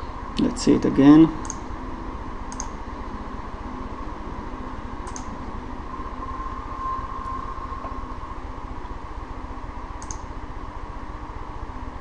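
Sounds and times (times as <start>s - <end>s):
faint steady tone: 0.0s - 12.0s
room tone hum and hiss: 0.0s - 12.0s
small ticks: 2.5s - 2.8s, 5.1s - 5.4s, 10.0s - 10.3s.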